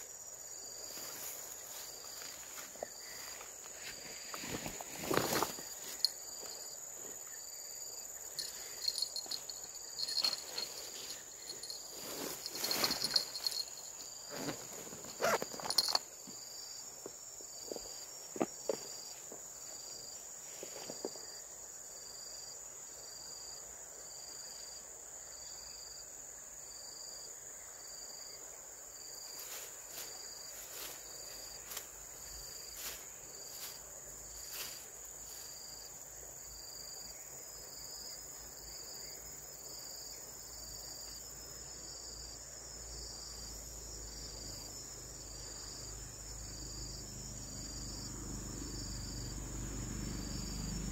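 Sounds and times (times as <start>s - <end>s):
insects whining: 0.0s - 50.9s
pulsed high insect chirp: 0.0s - 50.9s
knocks and rustles: 9.0s - 16.4s.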